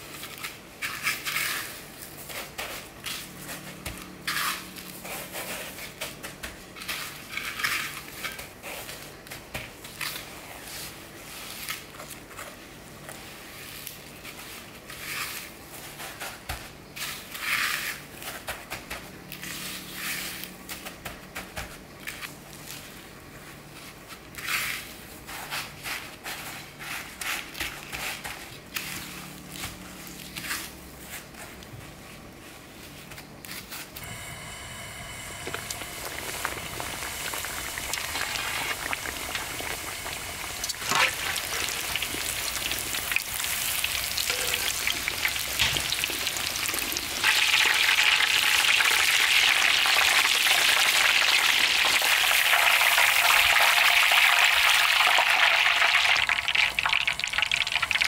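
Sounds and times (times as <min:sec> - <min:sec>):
breadcrumbs crunching and rustling: 0:35.5 - 0:51.0.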